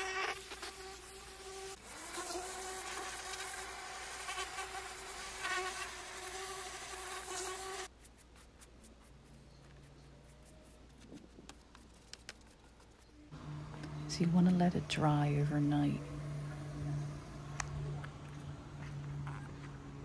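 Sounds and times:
pressure washer motor whine: 13.4 - 18.0.

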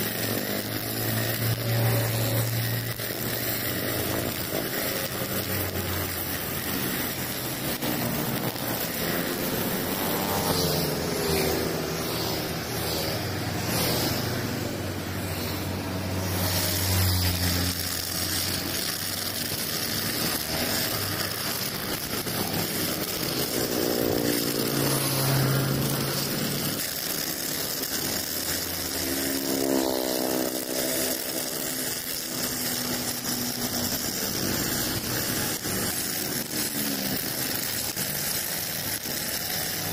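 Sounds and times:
brush cutter engine revving: 0.0 - 39.9
trimmer line cutting grass: 0.0 - 39.9.

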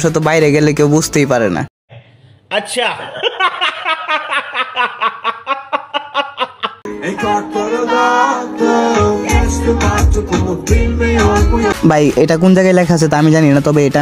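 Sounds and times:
man laughing: 2.9 - 6.9
song with deep bass beat: 6.9 - 11.9.

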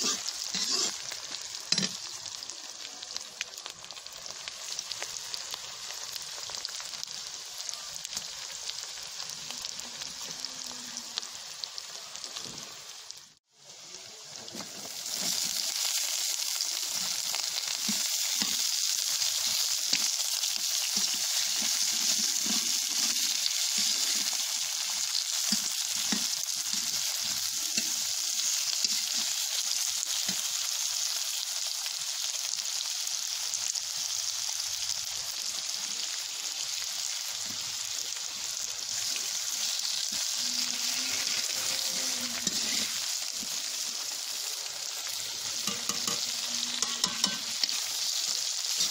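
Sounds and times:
ladle scraping a pan: 0.0 - 1.0, 41.2 - 43.1
vegetables sizzling in hot oil: 0.0 - 48.9.

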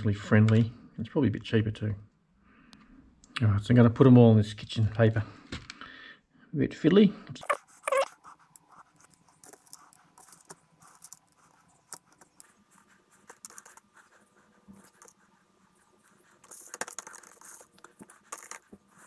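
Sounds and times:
ball bearings clicking and rattling: 7.5 - 12.6, 16.3 - 18.8.

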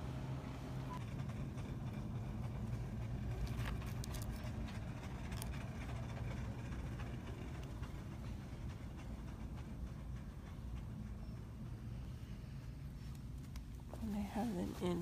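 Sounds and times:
store background hum: 0.0 - 15.0.

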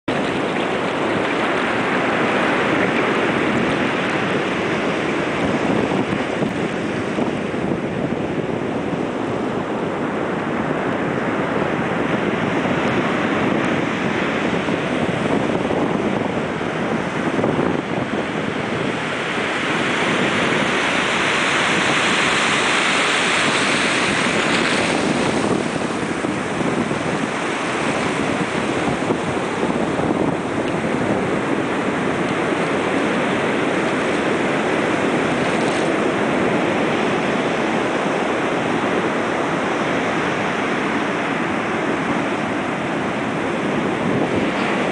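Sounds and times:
shallow river water running: 0.0 - 44.9
surf washing up a beach: 0.0 - 44.9.

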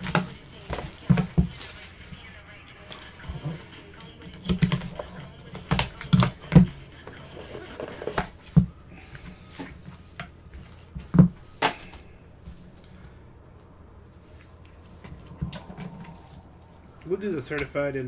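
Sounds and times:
hands tapping card box: 4.3 - 6.8.

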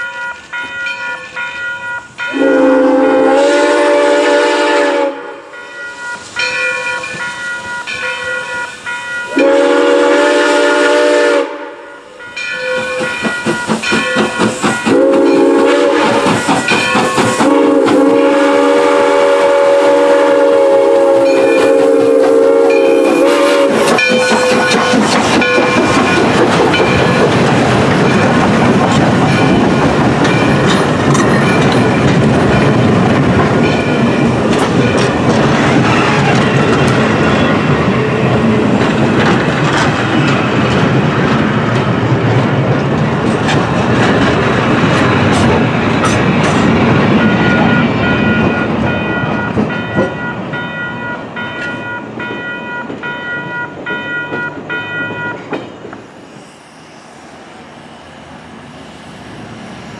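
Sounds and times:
ringing crossing bell: 0.0 - 2.8, 5.5 - 9.4, 11.8 - 15.6, 21.2 - 21.8, 22.7 - 23.2, 24.0 - 27.4, 29.2 - 33.0, 33.6 - 35.2, 47.1 - 55.6
steam locomotive chime whistle: 0.0 - 27.4, 47.2 - 55.8
train wheels clacking over joints: 12.4 - 56.1.

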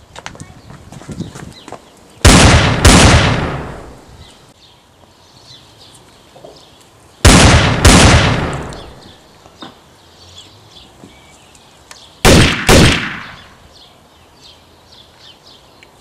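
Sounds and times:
gunshots with echo: 2.3 - 4.0, 7.3 - 9.0, 12.3 - 13.5.

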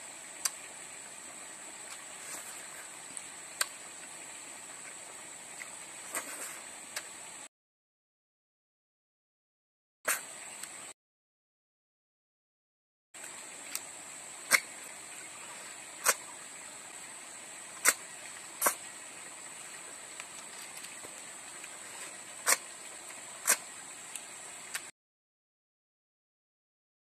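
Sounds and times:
steady high hiss: 0.0 - 7.5, 10.1 - 11.0, 13.2 - 24.9.

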